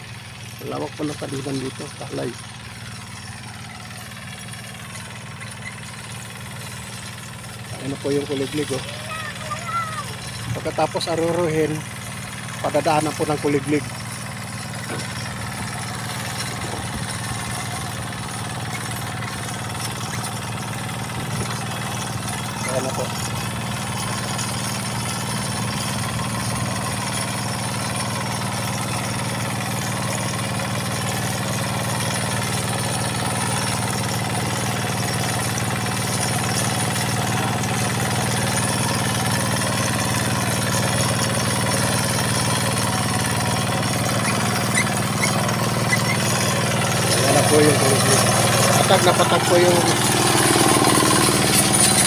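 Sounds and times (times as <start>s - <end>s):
diesel tractor engine running: 0.0s - 52.0s.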